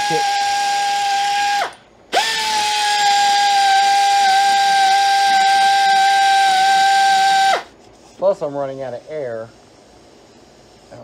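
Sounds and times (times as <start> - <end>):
air ratchet whining: 0.0 - 11.0
air hiss: 5.4 - 11.0.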